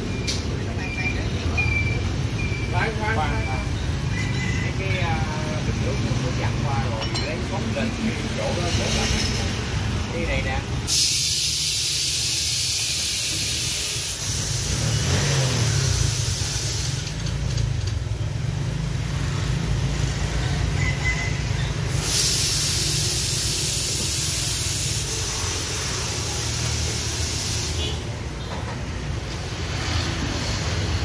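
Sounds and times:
compressed air hissing from hose: 0:10.9 - 0:17.4, 0:21.9 - 0:28.2.

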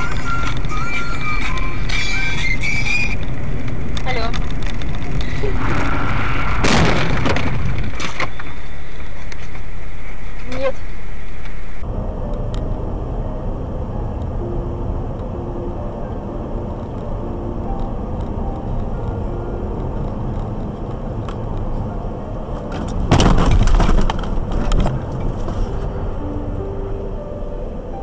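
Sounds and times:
car road and engine noise: 0:00.0 - 0:28.0
loud rattling knocks: 0:23.1 - 0:25.0.

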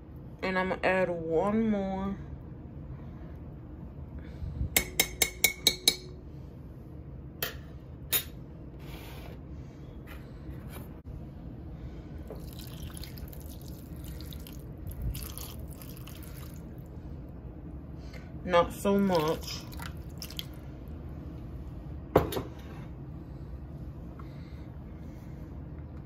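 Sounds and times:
metal spoon tapping crock: 0:04.8 - 0:06.1
water pouring and splashing: 0:12.4 - 0:16.8, 0:19.1 - 0:20.6.

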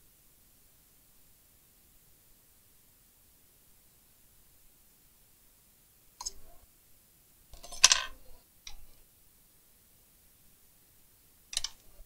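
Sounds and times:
soldering tools clicking: 0:11.5 - 0:11.9.

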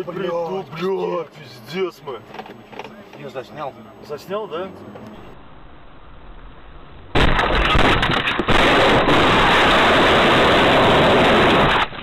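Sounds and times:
car crash: 0:05.2 - 0:12.0
harsh distorted noise: 0:05.2 - 0:12.0.

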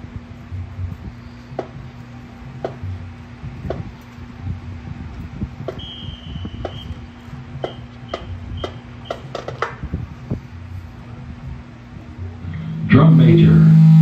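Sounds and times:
low hum: 0:00.0 - 0:14.0
high electronic tone: 0:12.3 - 0:14.0.

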